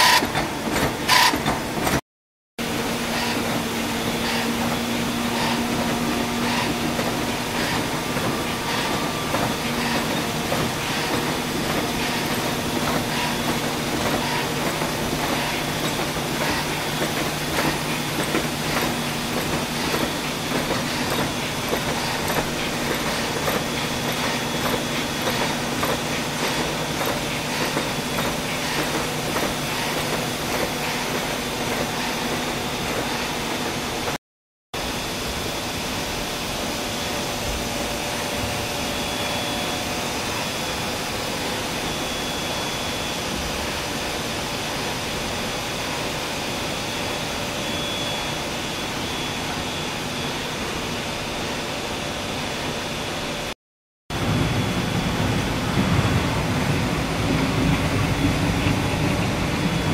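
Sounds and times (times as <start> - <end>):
machine hum: 2.6 - 34.2.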